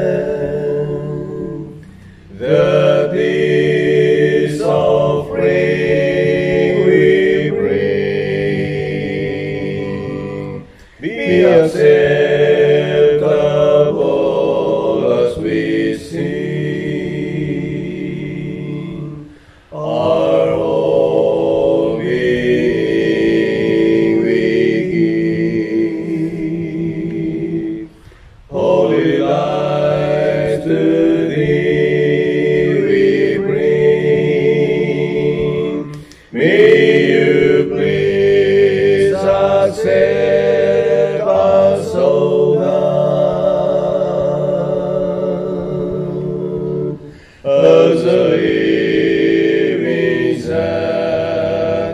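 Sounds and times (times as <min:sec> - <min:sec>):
man singing hymn in harmony: 0:00.0 - 0:51.9.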